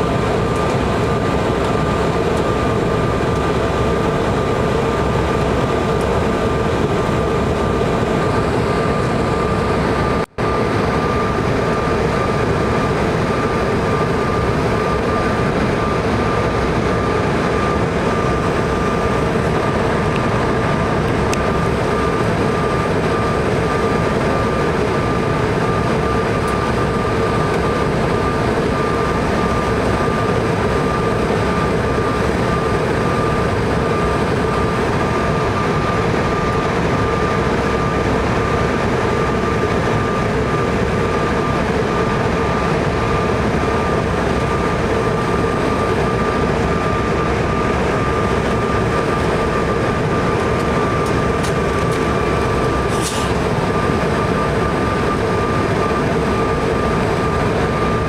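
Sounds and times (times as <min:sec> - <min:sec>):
high engine whine: 0:00.0 - 0:58.0
jet cabin rushing noise: 0:39.3 - 0:58.0.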